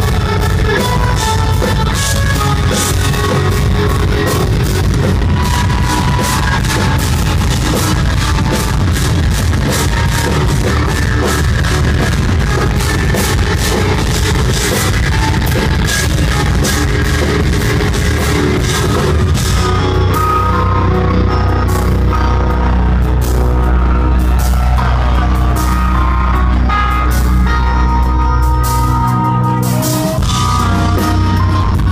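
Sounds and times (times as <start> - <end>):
rapid drum and cymbal hits: 0.0 - 20.0
electric guitar lines: 0.0 - 31.9.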